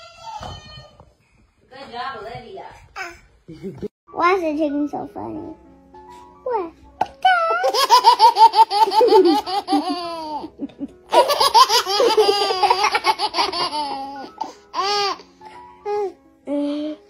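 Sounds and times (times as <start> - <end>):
baby giggling: 7.6 - 15.2.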